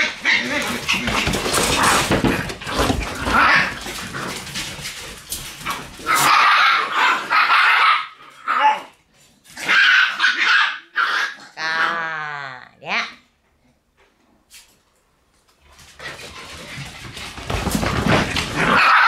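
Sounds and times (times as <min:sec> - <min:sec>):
rustling: 0:00.0 - 0:06.4
puppies growling and yapping: 0:00.0 - 0:12.0, 0:15.7 - 0:19.0.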